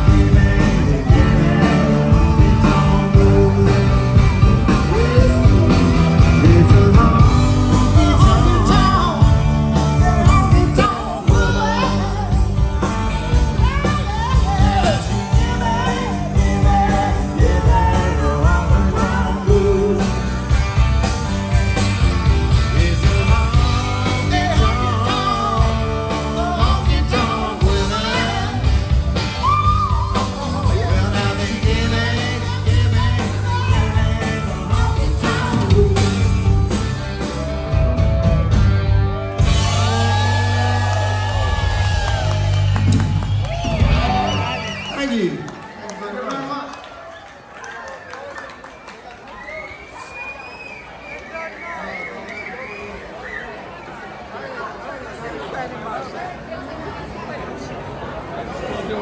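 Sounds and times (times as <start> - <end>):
person singing lead vocal: 0.0 - 20.5, 22.5 - 36.9, 39.6 - 41.6
electric guitars: 0.0 - 45.0
drums: 0.0 - 45.8.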